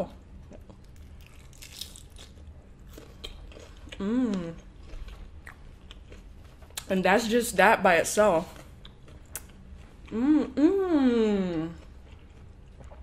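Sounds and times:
close-up chewing with crunches: 0.3 - 6.9, 8.4 - 10.2, 11.6 - 13.0
closed-mouth mmm: 3.9 - 4.7.

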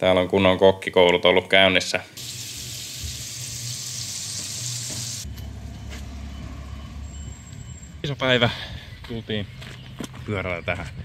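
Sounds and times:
food sizzling in frying pan: 2.2 - 5.2.

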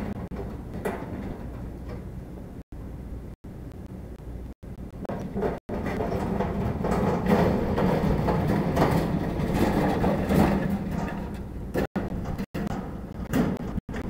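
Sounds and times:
shopping cart rattling on concrete: 5.4 - 11.5.

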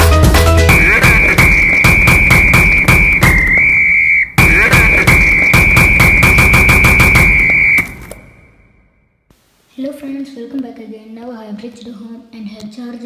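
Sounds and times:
fast drum beat: 0.0 - 3.8, 4.4 - 7.9
high whistle-like melody: 0.7 - 8.7.

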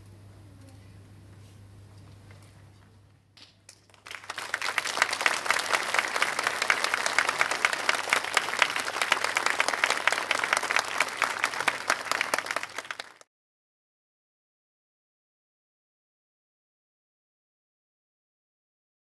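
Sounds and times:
audience applauding: 3.9 - 13.3.

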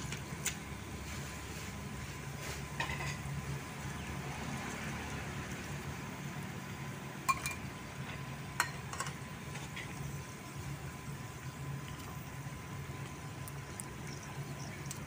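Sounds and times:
metal tongs clinking on basin: 7.3 - 7.6.

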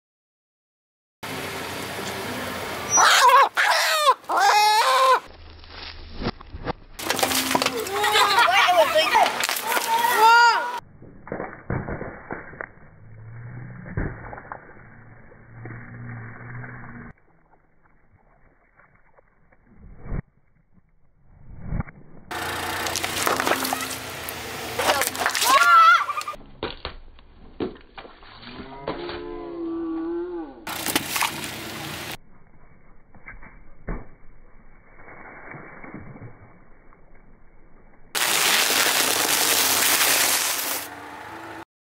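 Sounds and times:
engine hum: 1.2 - 3.7, 12.7 - 17.2, 22.1 - 26.4, 30.6 - 33.8, 39.0 - 41.7
pouches popping under tyre: 5.8 - 8.0, 9.2 - 10.0, 22.3 - 28.2, 38.2 - 40.9.

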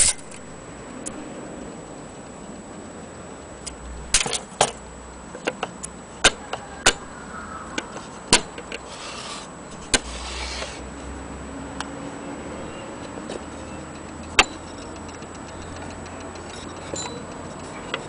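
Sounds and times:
brief rubbing sound: 8.9 - 10.8.

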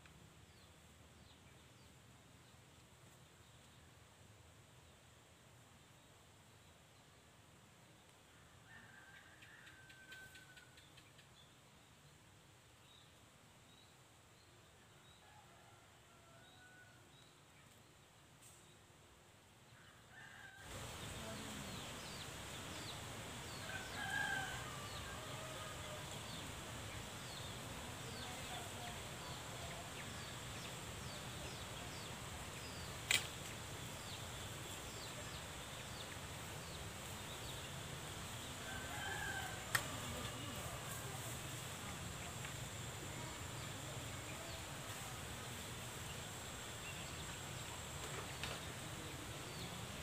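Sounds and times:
rooster crowing: 8.6 - 10.8, 19.8 - 20.8, 23.6 - 26.1, 38.6 - 40.9
sharp click: 33.0 - 33.4.

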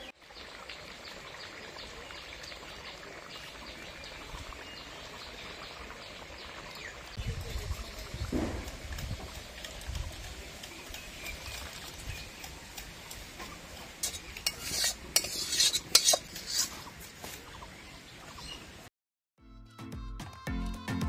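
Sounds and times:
metal spatula scraping pot: 13.4 - 17.1
background music: 19.4 - 21.0.

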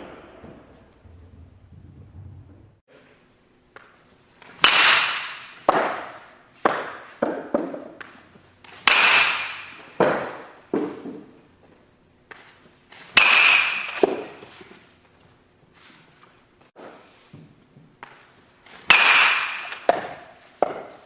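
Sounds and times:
baseball impacts echoing: 3.7 - 11.4, 12.2 - 14.6, 16.8 - 21.0.

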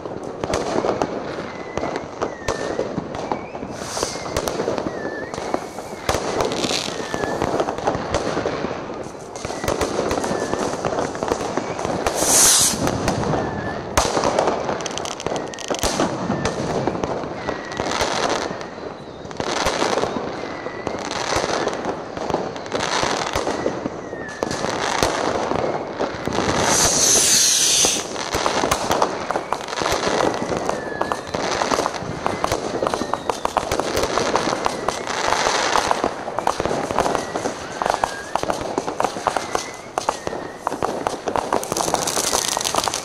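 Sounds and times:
fireworks bangs and crackles: 0.0 - 43.0
high firework hiss: 3.4 - 16.2, 23.1 - 43.0.

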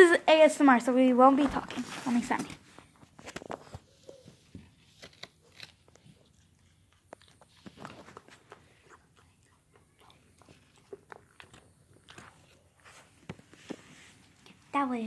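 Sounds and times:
dog chewing: 3.6 - 13.3.

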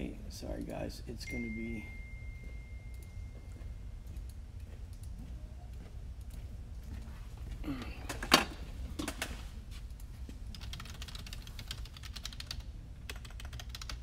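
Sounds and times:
typing on computer keyboard: 10.5 - 14.0.

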